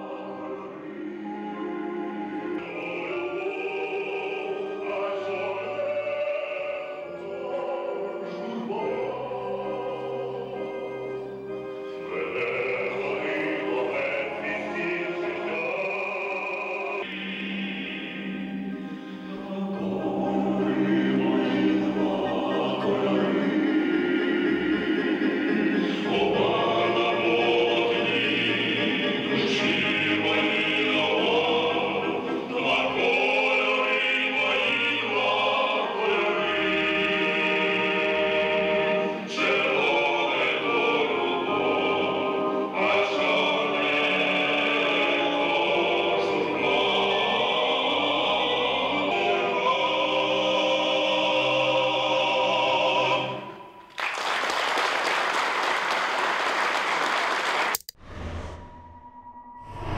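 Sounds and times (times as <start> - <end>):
male vocal quartet singing: 0.0 - 53.8
audience applauding: 53.9 - 58.0.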